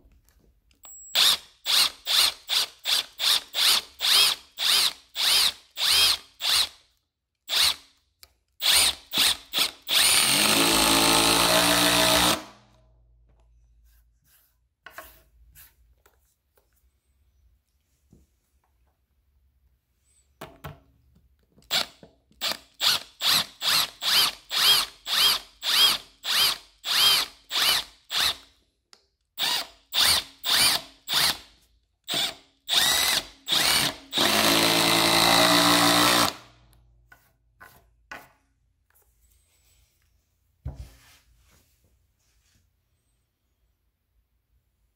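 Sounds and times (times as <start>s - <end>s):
power drill driving screw: 1.2s - 6.8s, 7.5s - 8.0s, 8.6s - 12.5s, 21.7s - 28.5s, 29.4s - 31.5s, 32.1s - 36.5s.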